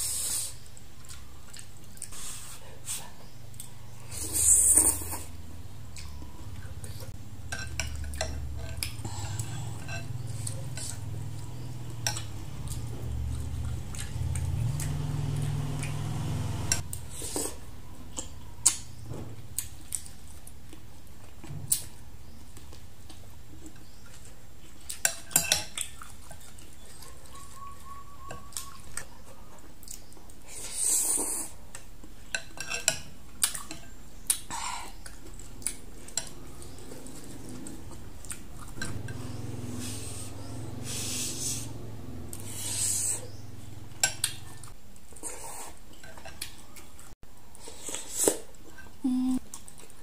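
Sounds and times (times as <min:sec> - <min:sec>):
slurping noodles: 0:39.6 - 0:41.8, 0:42.4 - 0:43.3.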